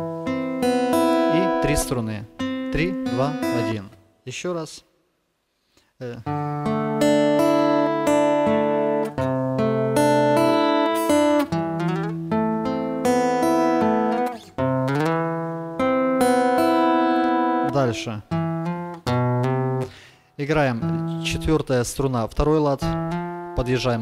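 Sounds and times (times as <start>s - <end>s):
fingerpicked acoustic guitar: 0.0s - 4.0s, 6.2s - 21.6s, 22.8s - 24.0s.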